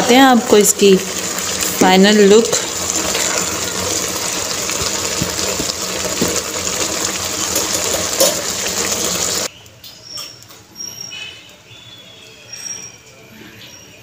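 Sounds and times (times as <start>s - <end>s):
pot of rice boiling: 0.0s - 9.5s.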